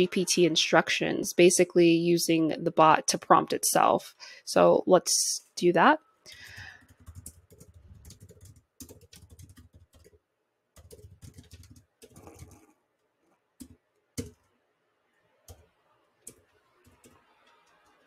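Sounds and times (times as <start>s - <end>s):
faint keyboard typing: 6.3s - 14.6s, 15.4s - 18.0s.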